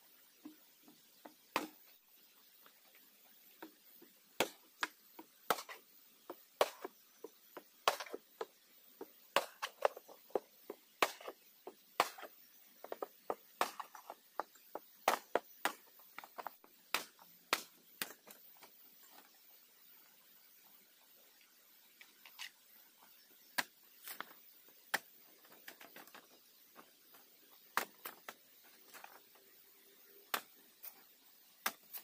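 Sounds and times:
hand chopping strikes: 12.0s - 12.3s.

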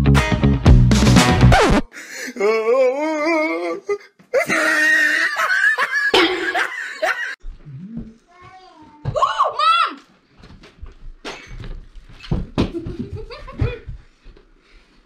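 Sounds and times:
person laughing: 4.4s - 7.4s, 12.8s - 14.0s.

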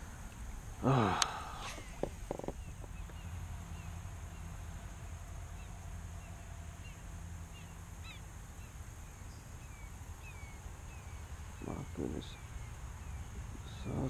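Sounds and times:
bird calls: 0.8s - 4.6s, 5.5s - 14.0s.

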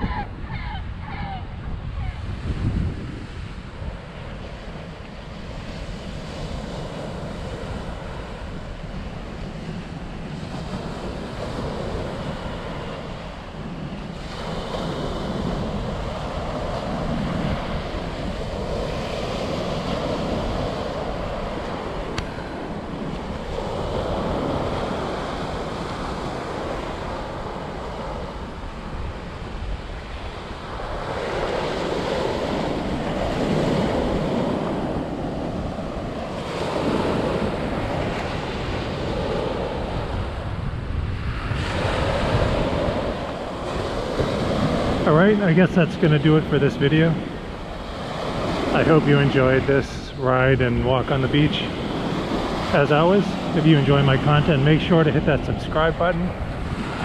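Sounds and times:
waves breaking on sandy beach: 0.0s - 57.0s
wind rumble on microphone: 0.0s - 57.0s.

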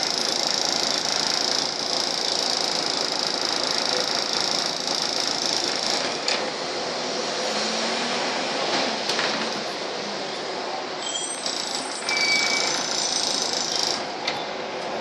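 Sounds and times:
bus engine and road noise: 6.0s - 12.8s, 14.0s - 15.0s.

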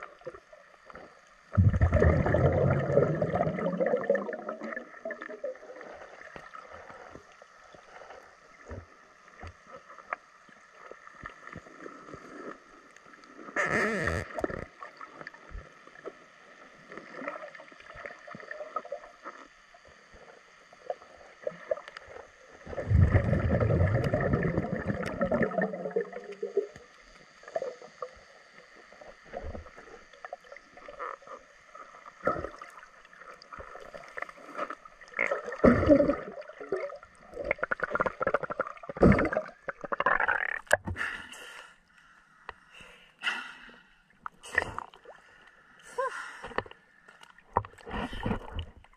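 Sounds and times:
underwater rush of noise: 1.5s - 6.0s, 22.6s - 26.7s
muffled underwater clicks and knocks: 39.7s - 41.0s, 46.4s - 48.9s.

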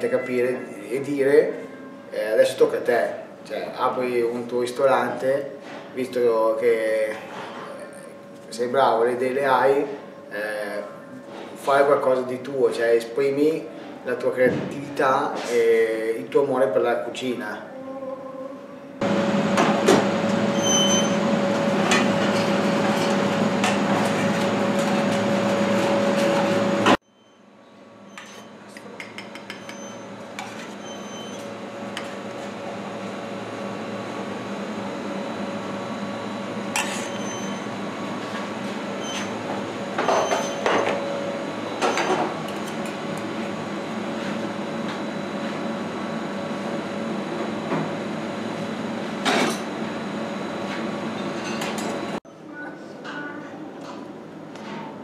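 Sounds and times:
loud steady hum: 0.0s - 27.0s.

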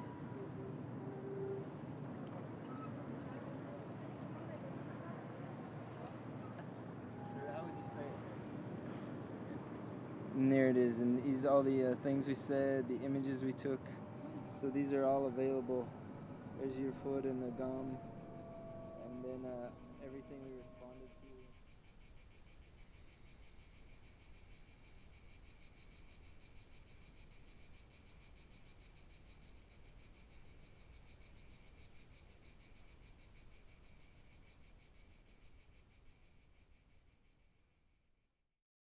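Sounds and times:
insects chirring: 3.8s - 38.4s.

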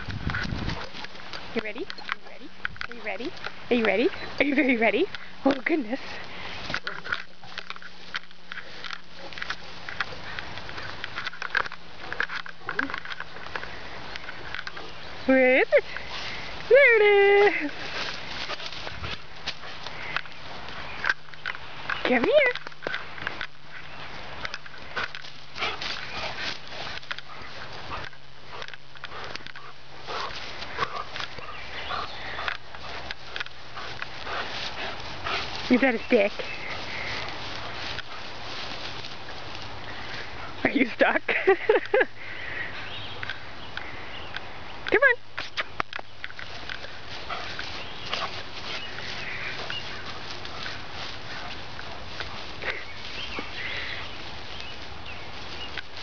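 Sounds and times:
grass rustling and swishing: 0.0s - 56.0s
dog sniffing: 24.9s - 38.4s, 46.8s - 54.1s.

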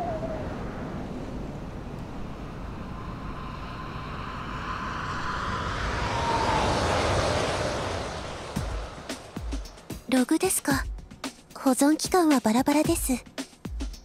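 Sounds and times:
electric train passing: 1.0s - 10.6s.

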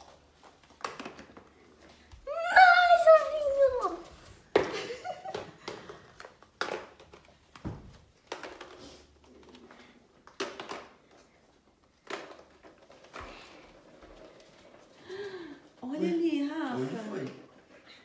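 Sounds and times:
plastic eggs clacking on wooden floor: 0.4s - 2.4s, 3.0s - 11.2s, 11.8s - 15.0s.

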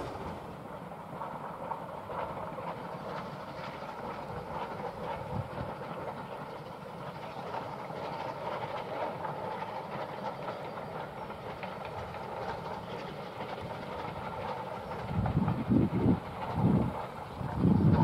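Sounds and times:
wind buffeting microphone: 0.0s - 2.2s, 13.7s - 18.0s
distant steam train rumbling: 0.0s - 18.0s.

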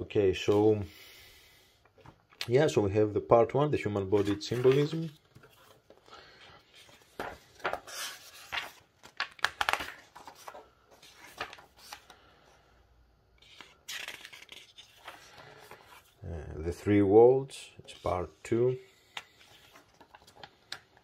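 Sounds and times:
book pages turning: 4.0s - 12.3s, 13.4s - 16.2s, 19.1s - 21.0s.

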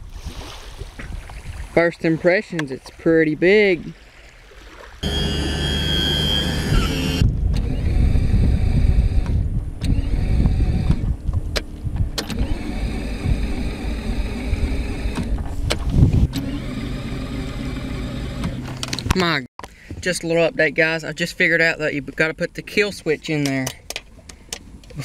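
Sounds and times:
electric starter cranking engine: 5.0s - 11.0s, 12.2s - 15.3s, 16.2s - 19.0s.

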